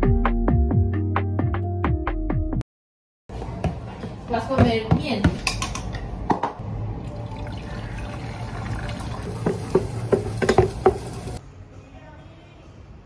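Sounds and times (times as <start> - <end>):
water pouring into a pot: 7.0 - 11.4
wooden spoon knocking against pot: 9.3 - 11.1.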